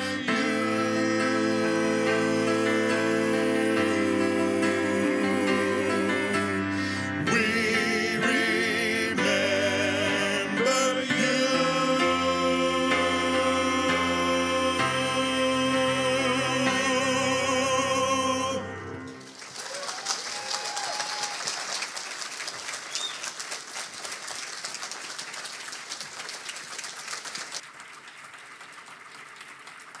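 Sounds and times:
men singing with vibrato: 0.0 - 19.1
congregation applauding: 19.1 - 30.0.

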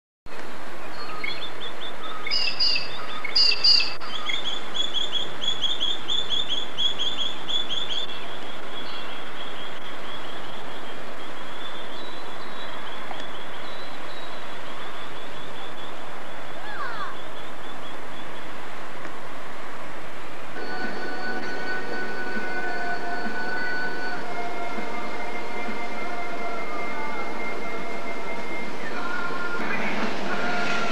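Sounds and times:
outdoor background hiss: 0.3 - 30.9
birds chirping: 0.8 - 18.6.

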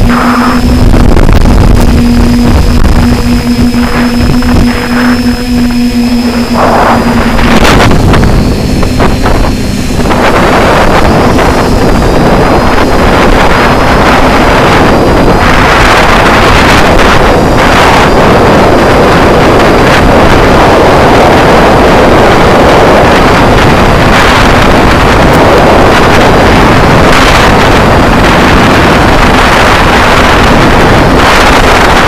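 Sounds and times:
drone propellers humming: 0.0 - 32.0
wind rushing over microphone: 0.0 - 32.0.

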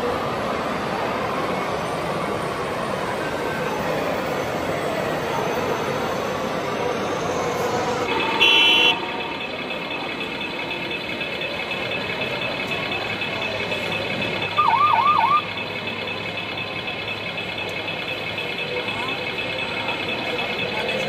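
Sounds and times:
siren warble: 1.5 - 21.0
high electronic beep: 4.3 - 21.0.

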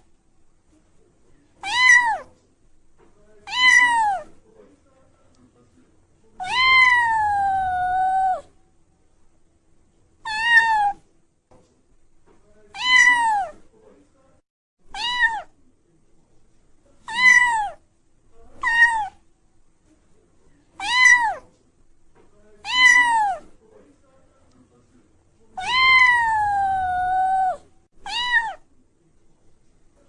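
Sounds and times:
cat meowing: 1.6 - 2.3, 3.4 - 4.3, 6.4 - 8.5, 10.2 - 11.0, 12.7 - 13.6, 14.9 - 15.5, 17.1 - 17.8, 18.6 - 19.2, 20.8 - 21.4, 22.6 - 23.5, 25.6 - 28.6.

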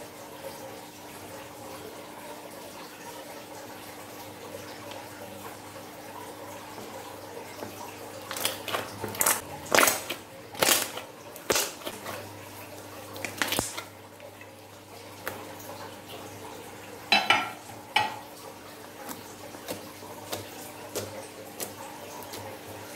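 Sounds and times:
slime squishing: 7.6 - 14.5, 18.8 - 22.9.

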